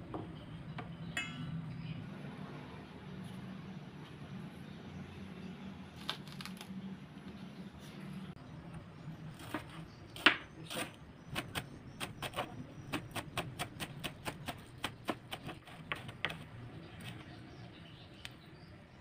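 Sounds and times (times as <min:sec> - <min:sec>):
knife chopping on plastic board: 0:09.5 - 0:16.4.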